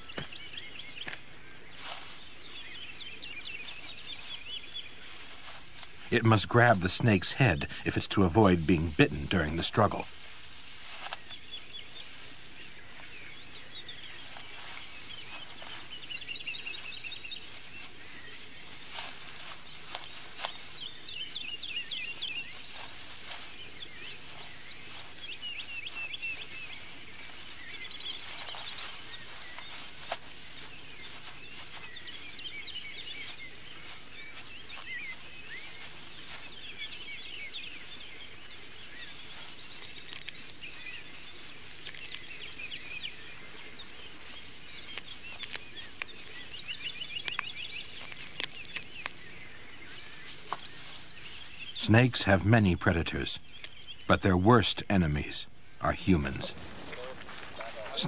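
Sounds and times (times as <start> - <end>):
small birds chirping: 0.0 - 58.0
steady outdoor hiss: 0.0 - 58.0
soft clicks and rustles: 10.1 - 13.1, 16.7 - 20.9, 38.7 - 42.5, 43.8 - 51.6.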